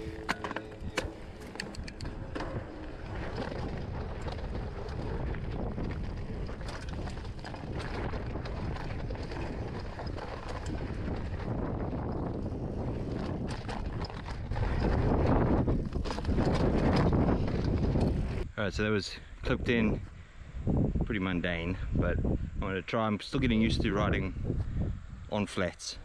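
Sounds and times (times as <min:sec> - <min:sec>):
bike clicks and rattles: 0:00.0 - 0:18.5
wind buffeting microphone: 0:00.0 - 0:25.7.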